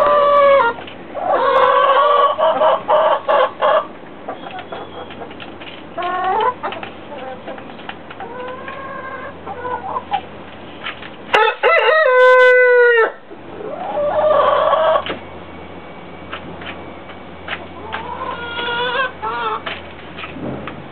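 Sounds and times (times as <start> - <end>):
rooster crowing: 11.3 - 13.2.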